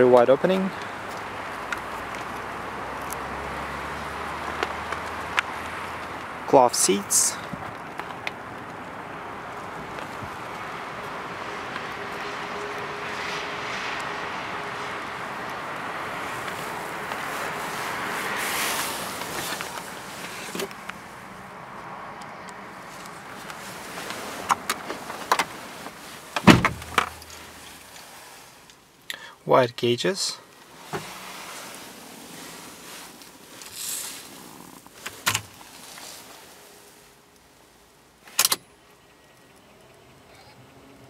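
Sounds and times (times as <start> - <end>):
clicks and knocks in car: 26.4 - 27.2
car door shutting: 26.4 - 27.3.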